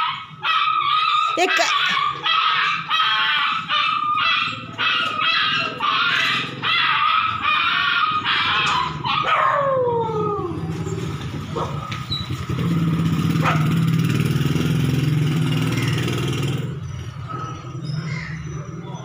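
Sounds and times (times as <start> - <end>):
dog whining: 0.0 - 11.0.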